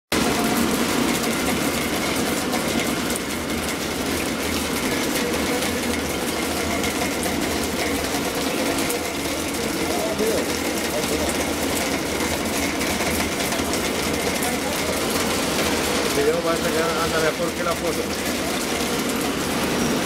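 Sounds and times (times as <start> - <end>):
ice machine drone: 0.1 - 20.0.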